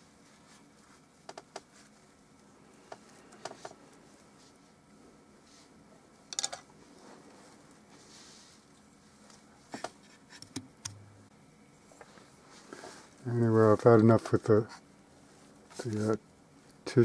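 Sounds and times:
low room hiss: 0:00.0 - 0:17.0
small objects clicking and tapping: 0:06.3 - 0:06.6.

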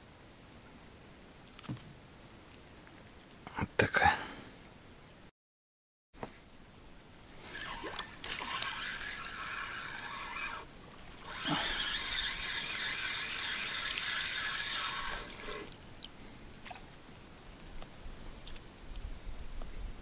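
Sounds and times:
water splashing and trickling: 0:06.4 - 0:19.4.

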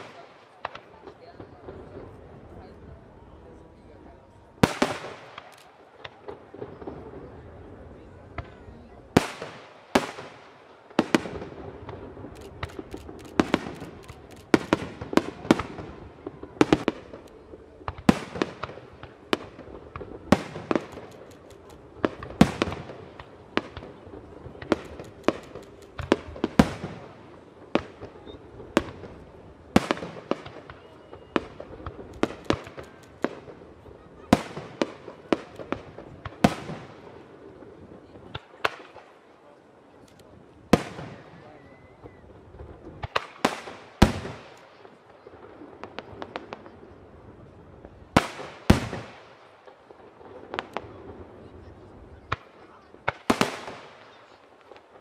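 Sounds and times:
firework shells bursting: 0:11.1 - 0:15.9, 0:16.6 - 0:27.2, 0:29.8 - 0:33.7
quick firework pops: 0:16.6 - 0:24.0, 0:24.6 - 0:26.9, 0:29.8 - 0:33.6.

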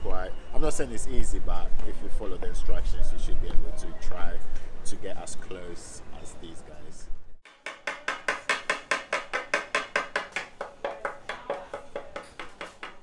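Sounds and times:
rapid tapping on chocolate mould: 0:07.4 - 0:13.0.

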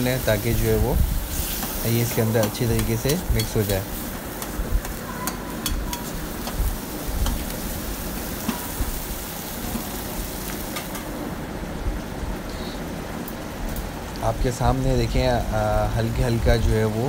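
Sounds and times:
meat sizzling in oil: 0:00.0 - 0:11.3.

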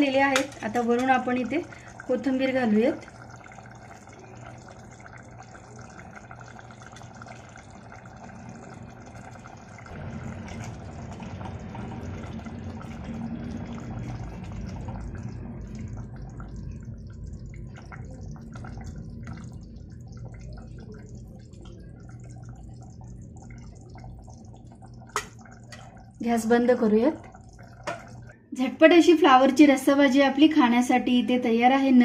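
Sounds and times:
gravy simmering and bubbling: 0:00.0 - 0:28.5
ladle stirring: 0:03.0 - 0:28.4.

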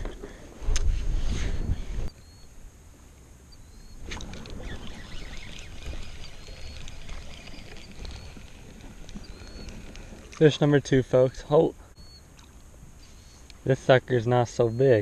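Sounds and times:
wind rumble on microphone: 0:00.0 - 0:02.1
water splashing and sloshing: 0:04.0 - 0:11.3.

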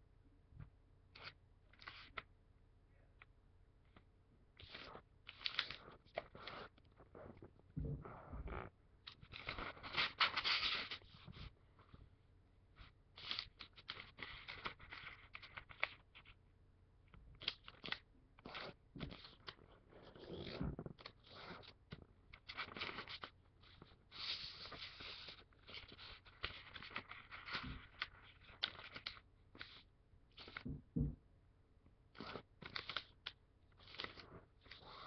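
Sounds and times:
paper rustling and crinkling: 0:04.6 - 0:06.8, 0:09.1 - 0:11.5, 0:22.3 - 0:30.7, 0:32.1 - 0:35.0.

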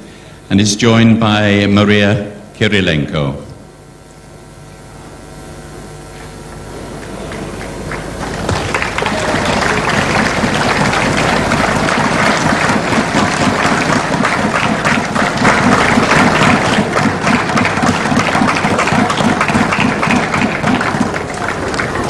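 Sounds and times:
crowd applauding: 0:06.7 - 0:22.0.

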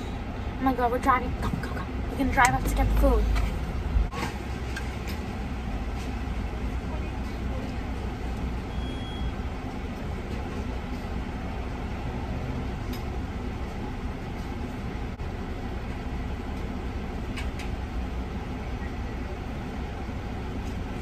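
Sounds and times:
car engine idling rumble: 0:00.0 - 0:21.0.

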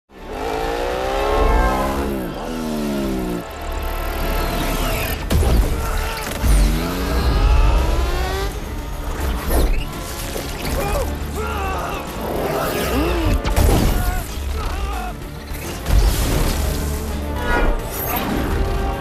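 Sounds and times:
motorcycle engine accelerating: 0:00.1 - 0:05.2, 0:06.4 - 0:09.4
car engines: 0:00.1 - 0:13.6
dramatic music score: 0:00.1 - 0:19.0.

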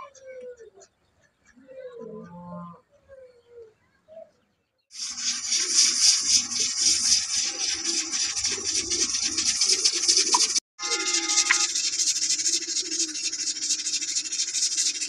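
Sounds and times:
rasping rhythmic scrubbing: 0:05.0 - 0:15.0.

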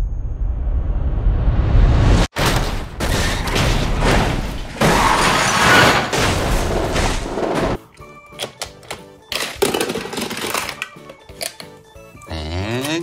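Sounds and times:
car crash impacts and metal scraping: 0:02.3 - 0:07.8.

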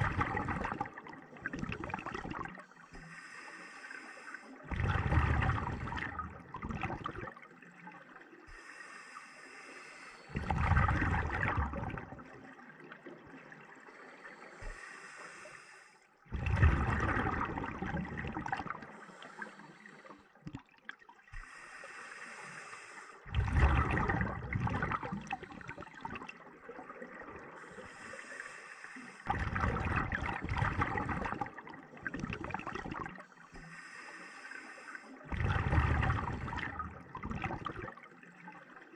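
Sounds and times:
exhaust bubbles gurgling: 0:00.0 - 0:02.6, 0:04.6 - 0:08.5, 0:10.3 - 0:13.7, 0:16.3 - 0:19.0, 0:23.2 - 0:28.0, 0:29.2 - 0:33.7, 0:35.2 - 0:38.8
regulator inhale hiss: 0:03.0 - 0:04.6, 0:08.5 - 0:10.4, 0:13.9 - 0:16.1, 0:18.9 - 0:20.2, 0:21.4 - 0:23.3, 0:27.6 - 0:29.3, 0:33.5 - 0:35.3.

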